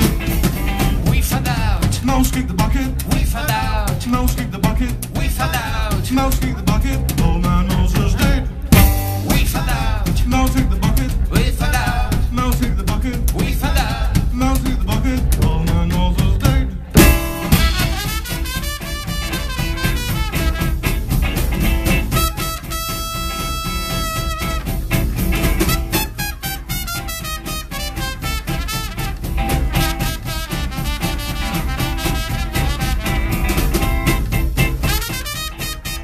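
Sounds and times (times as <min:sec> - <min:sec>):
swing band playing: 0:00.0 - 0:36.0
trumpet holding long note: 0:17.4 - 0:20.8, 0:22.1 - 0:24.7, 0:26.0 - 0:33.2, 0:34.9 - 0:36.0.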